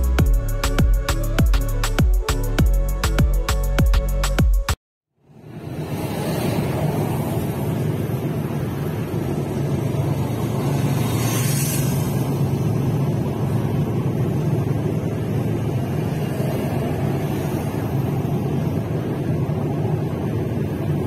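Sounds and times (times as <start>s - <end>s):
car engine and tyre drone: 5.2s - 21.0s
road noise hiss: 5.2s - 21.0s.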